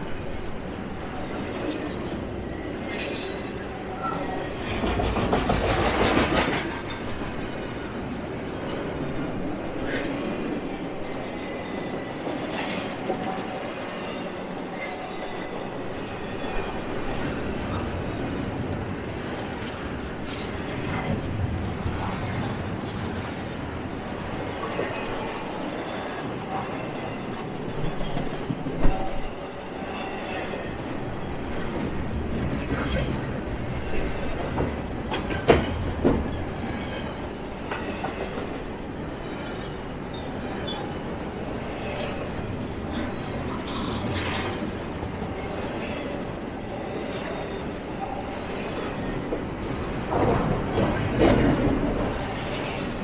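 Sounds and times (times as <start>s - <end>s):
train cars rumbling past: 0.0s - 53.0s
wheels clicking over rail joints: 2.9s - 7.8s.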